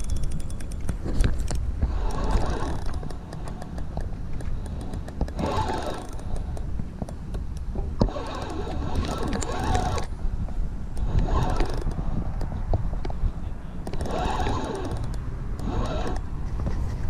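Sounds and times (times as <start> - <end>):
fishing reel gears whirring: 0.0 - 6.7, 8.0 - 10.1, 10.9 - 12.6, 13.9 - 16.3
wind noise on microphone: 0.0 - 17.0.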